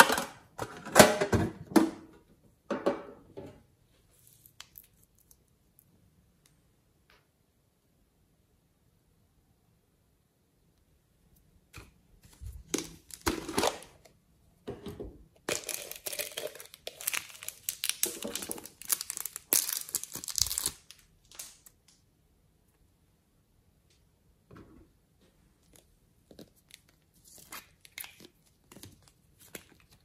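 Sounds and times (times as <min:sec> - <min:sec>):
plastic bottle crinkling: 0:12.4 - 0:14.0, 0:15.4 - 0:21.7.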